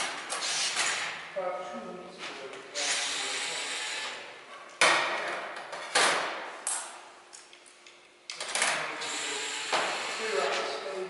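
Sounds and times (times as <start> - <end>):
cordless drill whirring: 2.8 - 4.2, 9.0 - 10.6.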